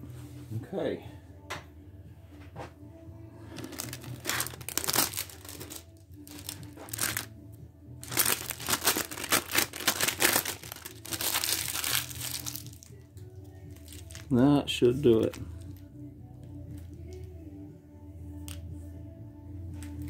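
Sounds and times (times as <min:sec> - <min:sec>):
plastic sheeting crinkling: 0:03.6 - 0:07.3, 0:08.0 - 0:12.9.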